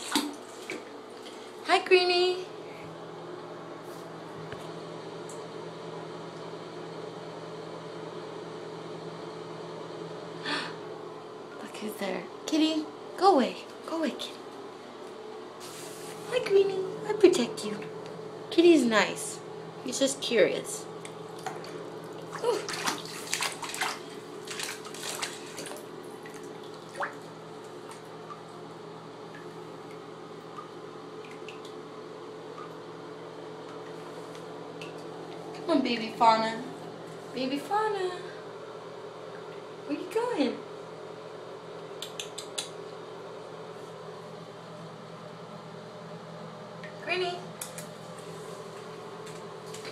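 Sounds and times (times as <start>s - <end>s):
bathwater splashing: 0.0s - 1.6s, 20.9s - 32.9s
mechanical hum: 0.0s - 49.9s
water dripping: 21.0s - 28.5s, 29.2s - 32.9s.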